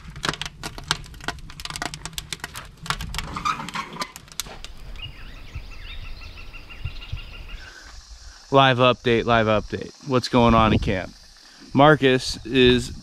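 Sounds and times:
wood fire crackling and popping: 0:00.0 - 0:05.7
faint bird chirps: 0:04.8 - 0:08.4.

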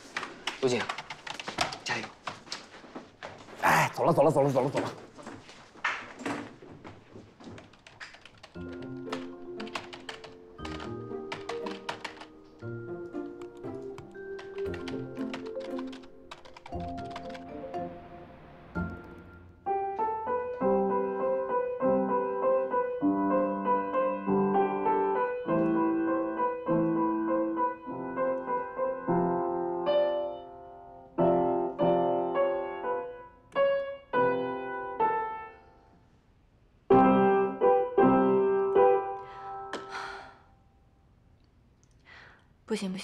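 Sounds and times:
digital piano playing chords: 0:08.4 - 0:35.8, 0:36.9 - 0:39.7.

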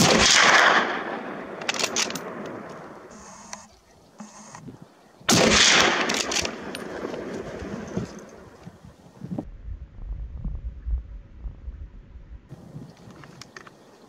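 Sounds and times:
gunshots echoing: 0:00.0 - 0:03.3, 0:05.3 - 0:07.9.

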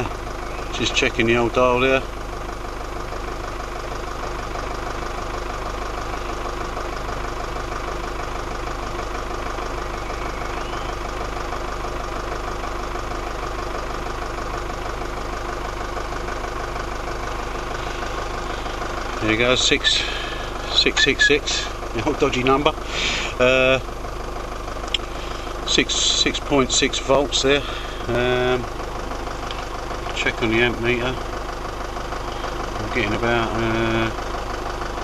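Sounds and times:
diesel engine idling: 0:00.0 - 0:35.0.

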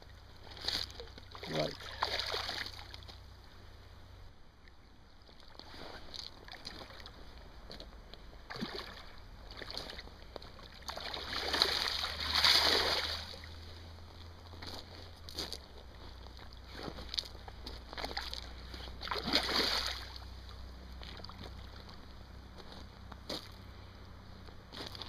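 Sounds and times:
fish splashing in water: 0:00.4 - 0:03.0, 0:10.6 - 0:13.6, 0:19.0 - 0:20.3.

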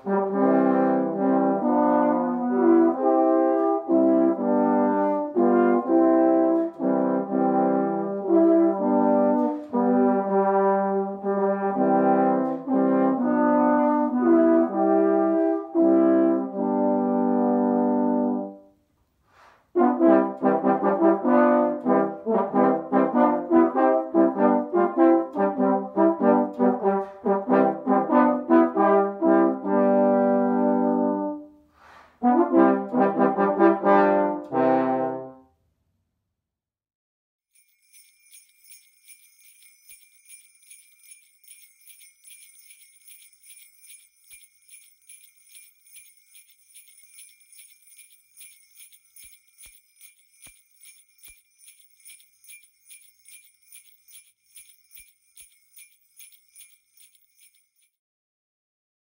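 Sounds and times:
jingle bells shaking: 0:00.0 - 0:15.1, 0:19.8 - 0:28.7, 0:37.6 - 0:58.0
brass trio playing: 0:00.0 - 0:18.6, 0:19.8 - 0:31.5, 0:32.2 - 0:35.4.

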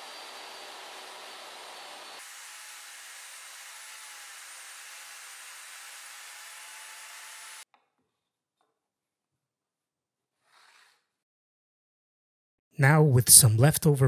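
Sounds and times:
table saw cutting with whine: 0:00.0 - 0:07.6.

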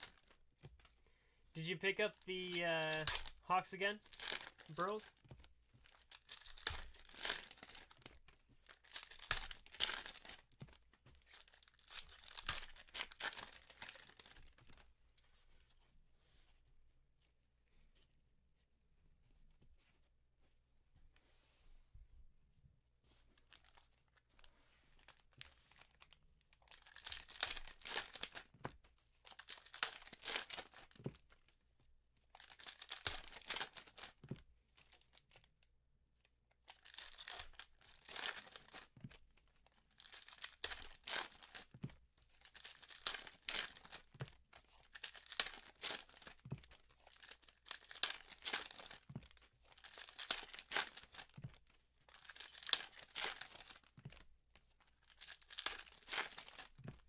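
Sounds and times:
foil wrappers tearing and crinkling: 0:01.6 - 0:05.1, 0:05.8 - 0:10.5, 0:11.3 - 0:14.6, 0:26.7 - 0:28.5, 0:29.3 - 0:31.0, 0:32.4 - 0:34.2, 0:36.7 - 0:38.9, 0:39.9 - 0:41.8, 0:42.4 - 0:53.9, 0:55.0 - 0:56.8.

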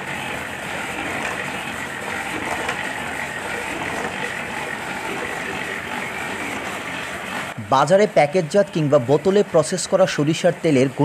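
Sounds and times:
oil expeller machine running: 0:00.0 - 0:11.0.

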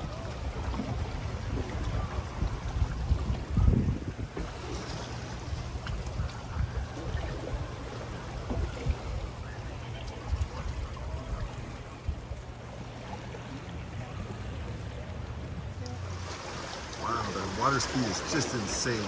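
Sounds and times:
wind buffeting microphone: 0:00.0 - 0:12.6
river rushing: 0:12.6 - 0:19.0.

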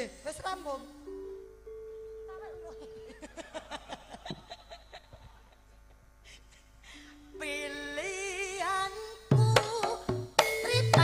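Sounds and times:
song with wavering melody: 0:00.5 - 0:03.5, 0:06.9 - 0:09.4
people laughing: 0:02.8 - 0:06.0.

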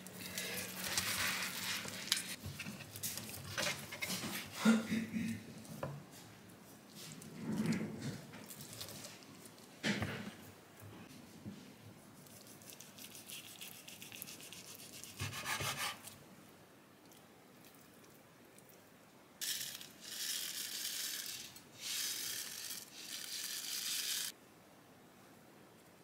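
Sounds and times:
knife sawing on cutting board: 0:14.6 - 0:16.1
seeds rattling in pouch: 0:19.4 - 0:24.3.

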